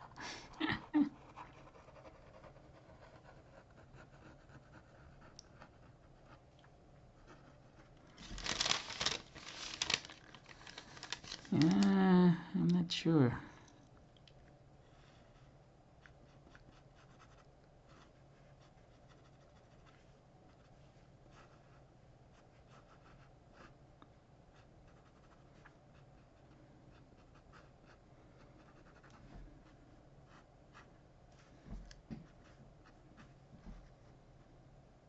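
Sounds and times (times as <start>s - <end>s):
pen scratching on paper: 16.3s - 20.0s.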